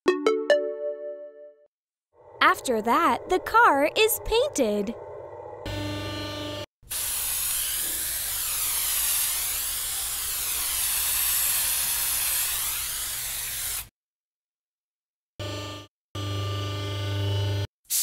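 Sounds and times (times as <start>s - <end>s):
cartoon paint spray hiss: 6.9s - 13.9s.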